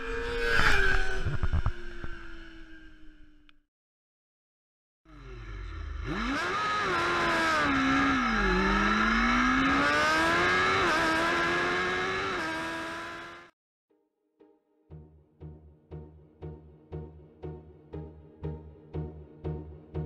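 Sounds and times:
racing engine revving: 5.2s - 13.5s.

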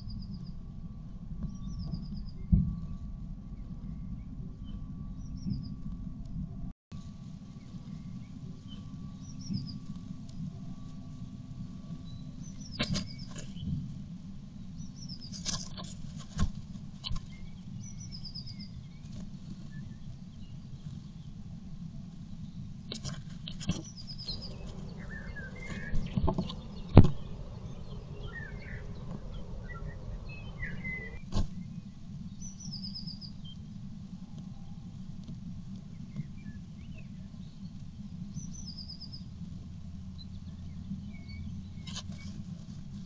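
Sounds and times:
low hum: 0.0s - 43.0s
high bird chirping: 23.8s - 31.2s.

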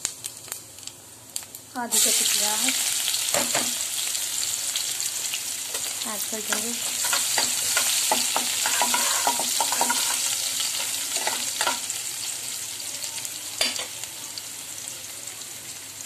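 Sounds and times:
onions sizzling in hot oil: 0.0s - 16.0s
spoon scraping metal pan: 6.5s - 11.8s.

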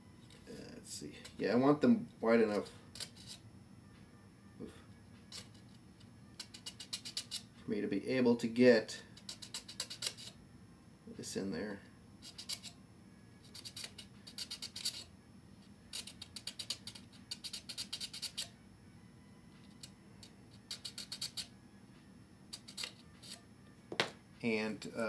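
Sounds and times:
file rasping on plastic: 6.4s - 7.4s, 9.2s - 10.4s, 12.2s - 12.7s, 13.5s - 15.1s, 15.9s - 18.5s, 20.6s - 21.5s, 22.6s - 23.4s.

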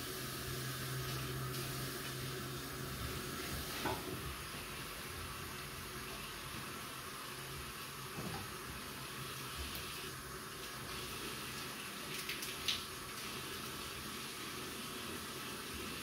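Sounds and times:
tap water running into basin: 0.0s - 16.0s.

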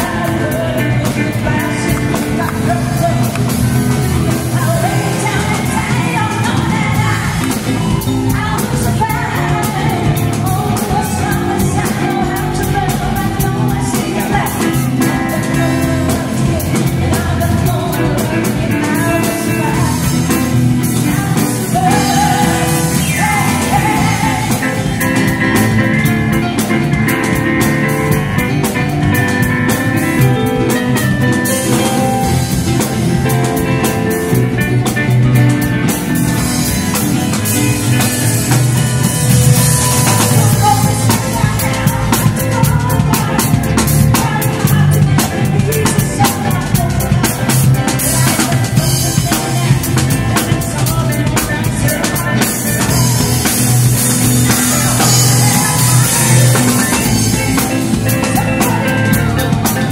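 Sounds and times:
drum kit beat: 0.0s - 59.9s
electronic keyboard: 0.0s - 59.9s
person singing: 0.0s - 59.9s.

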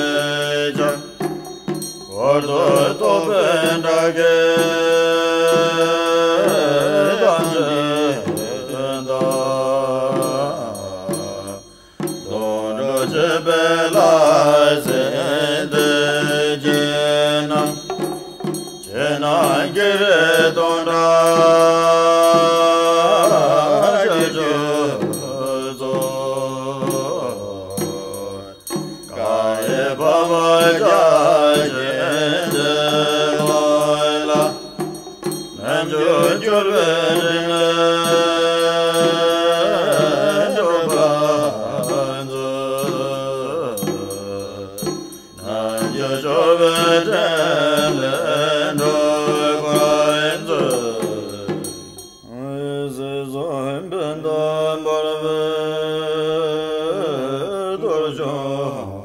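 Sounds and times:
person chanting melodic phrases: 0.0s - 34.8s, 35.5s - 59.0s.

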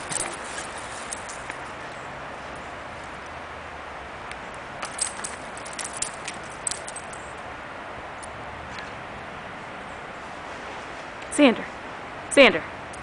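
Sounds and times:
collar and leash jingling: 0.0s - 1.8s, 4.8s - 7.4s.

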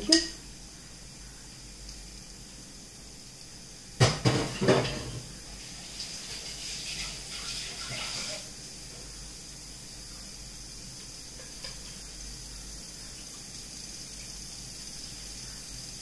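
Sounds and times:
faint hissing: 0.0s - 16.0s
metal cookware clanking: 4.0s - 5.2s.

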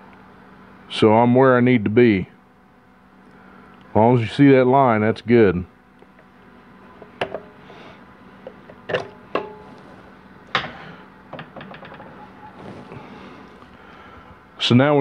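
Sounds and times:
metal tools clanking: 10.5s - 12.9s.

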